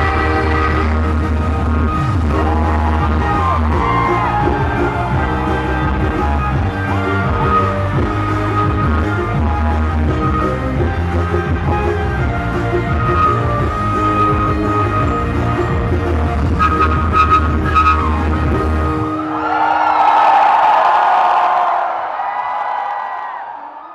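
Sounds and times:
woman singing: 0.0 - 1.4.

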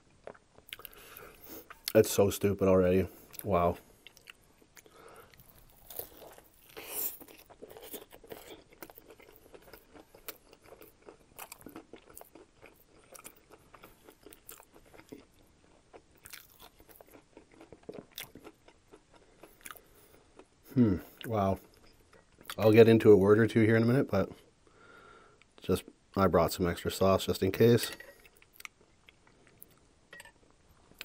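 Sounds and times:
crunchy chewing: 3.2 - 22.6.

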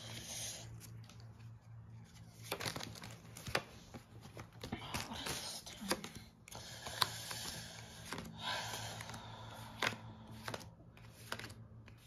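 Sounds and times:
cards sliding and clicking: 5.2 - 8.3, 9.0 - 12.0.

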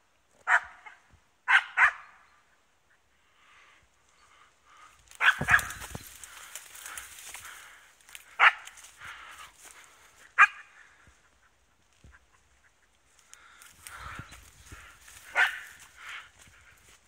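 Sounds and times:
dog barking: 0.5 - 2.2, 5.2 - 5.9, 8.4 - 8.8, 10.4 - 10.7, 15.2 - 16.2
rustling through brush: 4.0 - 17.0.

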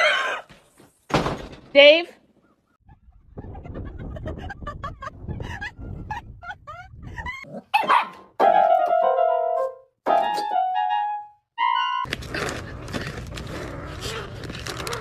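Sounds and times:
low wind rumble: 2.9 - 7.4
dog yapping: 7.5 - 8.3
electronic keyboard chords: 8.4 - 12.1.

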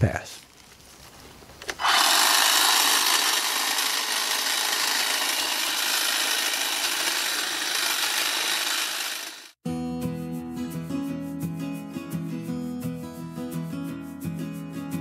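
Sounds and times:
blades cutting through brush: 0.8 - 9.6
electric hedge trimmer running: 1.8 - 9.6.

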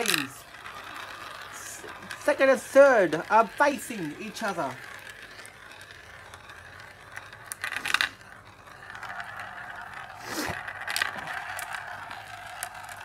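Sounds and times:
marble whirring around funnel: 0.0 - 13.0
marbles rolling and clicking: 0.0 - 13.0.

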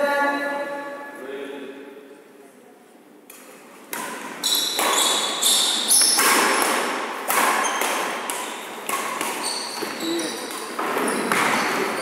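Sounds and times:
racket hitting shuttlecock: 3.3 - 11.9
shoe squeaks: 4.4 - 6.2, 7.6 - 7.8, 9.3 - 12.0.

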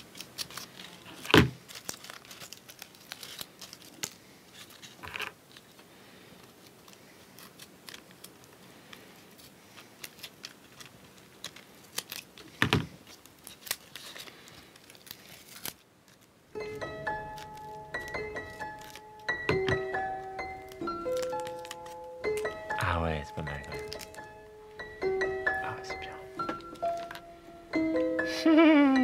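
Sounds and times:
paper crinkling and creasing: 0.0 - 16.4, 17.1 - 19.3, 20.5 - 22.2, 23.2 - 24.4
paper rustle: 0.0 - 16.4, 17.2 - 19.3, 20.0 - 22.5, 23.4 - 24.4.

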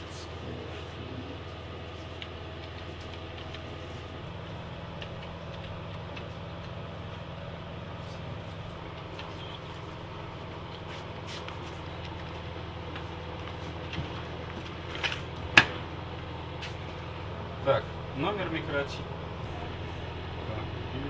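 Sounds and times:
steady low hum: 0.0 - 21.0
keyboard keys clicking: 2.2 - 3.8, 4.9 - 6.8.

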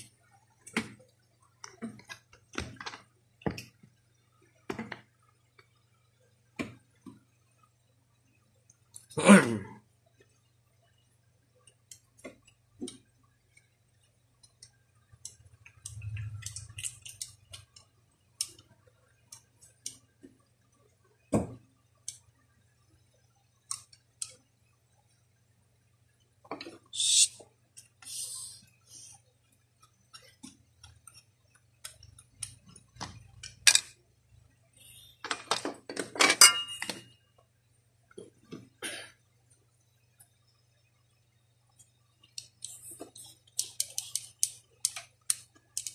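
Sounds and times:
small parts clicking and clinking: 14.4 - 20.1, 29.5 - 34.0, 35.2 - 37.2, 41.7 - 45.9
parts rattling: 35.2 - 37.1.

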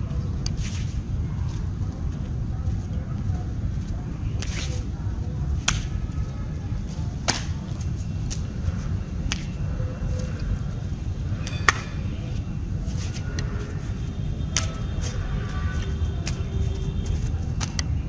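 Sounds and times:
sharp strike snaps: 5.6 - 5.9.

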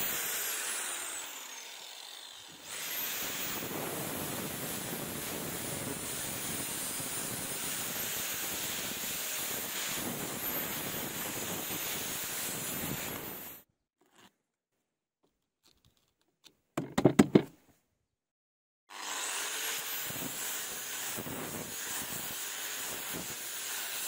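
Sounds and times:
angle grinder grinding steel: 0.0 - 14.3
handling noises on grinder: 15.2 - 17.6.

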